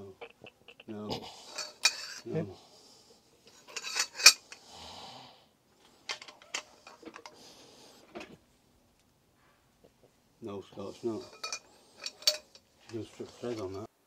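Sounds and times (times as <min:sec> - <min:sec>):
metallic scraping: 0:01.4 - 0:02.4, 0:03.5 - 0:04.6, 0:10.8 - 0:13.9
metal tools clinking on engine block: 0:01.5 - 0:02.3, 0:03.5 - 0:04.6, 0:11.1 - 0:13.9.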